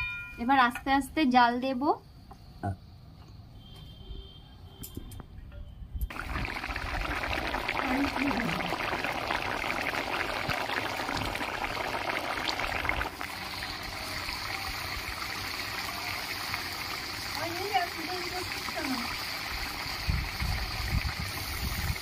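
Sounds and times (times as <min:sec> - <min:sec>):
gravy bubbling in a pan: 0:06.1 - 0:22.0.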